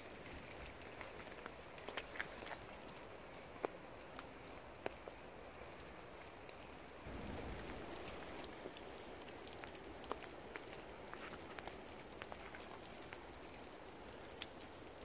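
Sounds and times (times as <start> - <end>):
wet snow patter: 5.7 - 15.0
low rumble: 7.1 - 8.9.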